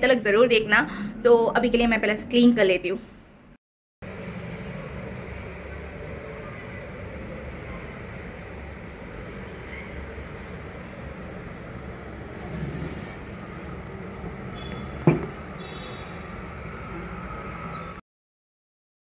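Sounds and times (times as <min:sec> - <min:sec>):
cloth wiping wooden tabletop: 0:12.4 - 0:13.9
metal pot knocking on table: 0:15.0 - 0:15.4.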